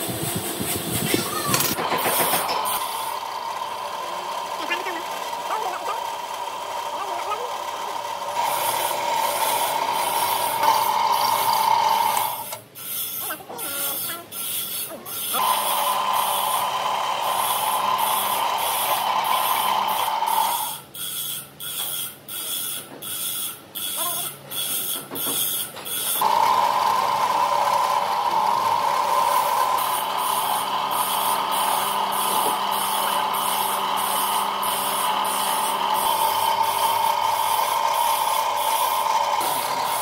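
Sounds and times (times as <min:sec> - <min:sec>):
pulsing drill sound: 0:00.0 - 0:22.6, 0:23.2 - 0:40.0
drill press boring into wood: 0:01.1 - 0:13.2, 0:13.8 - 0:20.8, 0:25.4 - 0:40.0.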